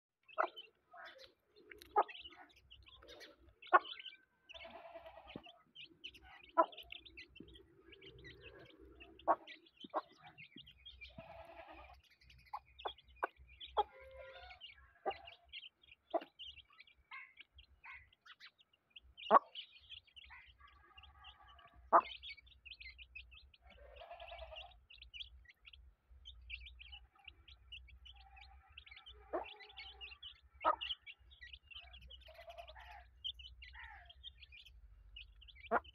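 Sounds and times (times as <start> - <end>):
hen clucking softly: 0.3 - 5.6, 6.2 - 15.5, 16.1 - 16.4, 19.3 - 19.6, 20.3 - 22.3, 23.6 - 24.8, 28.1 - 31.1, 31.8 - 33.1, 35.6 - 35.9
chicks peeping: 0.3 - 35.9.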